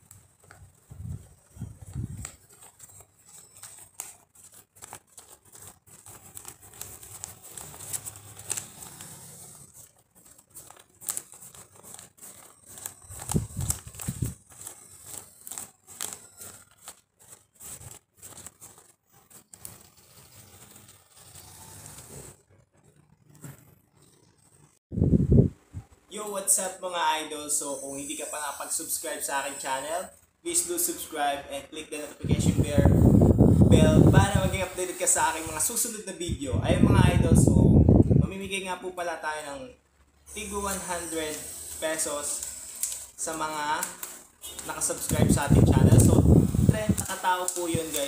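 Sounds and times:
banknotes flicking and rustling: 0.0s - 24.8s, 27.7s - 48.0s.

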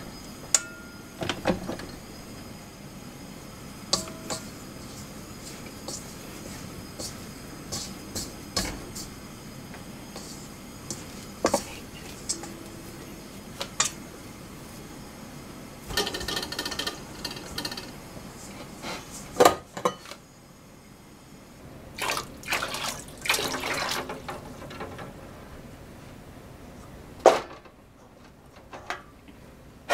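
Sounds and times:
dough kneaded in metal bowl: 3.8s - 14.0s
water splashing in steel pot: 22.0s - 24.2s.

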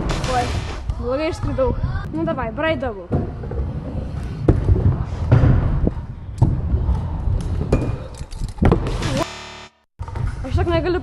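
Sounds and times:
scooter wheels rolling on wooden ramps: 1.8s - 9.2s.

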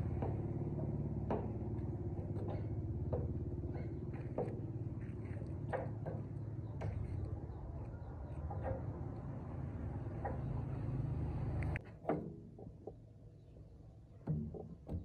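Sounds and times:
low motor drone: 0.0s - 11.8s.

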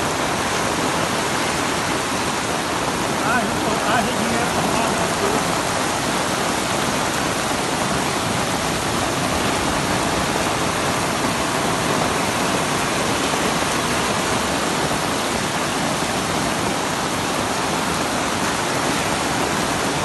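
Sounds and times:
floodwater rushing: 0.0s - 20.0s
heavy rain: 0.0s - 20.0s.

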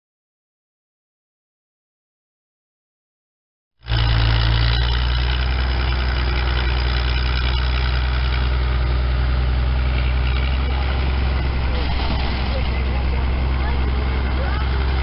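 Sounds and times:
power shovel engine humming: 3.8s - 15.0s.

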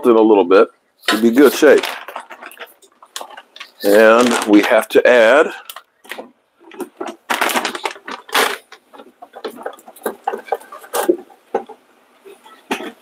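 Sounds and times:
kitchen clicks taps and rustles: 5.6s - 11.8s.

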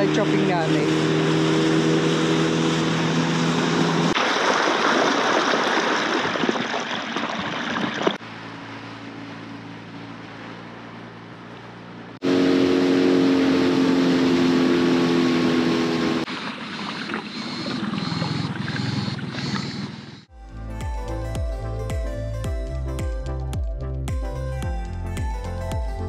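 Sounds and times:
outboard motor humming: 0.0s - 26.0s
rushing water and wind: 0.9s - 19.9s.

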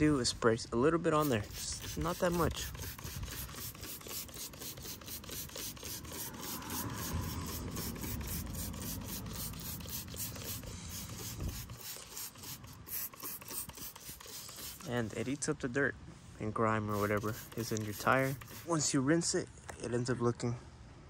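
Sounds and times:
trigger spray bottle hissing: 1.2s - 15.4s, 16.9s - 18.9s.

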